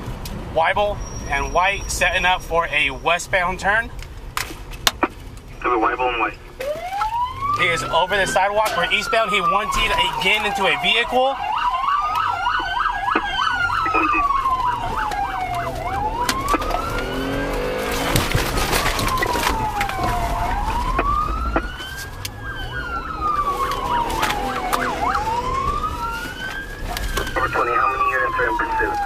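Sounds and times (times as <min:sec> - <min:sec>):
police siren wailing: 0:05.8 - 0:29.0.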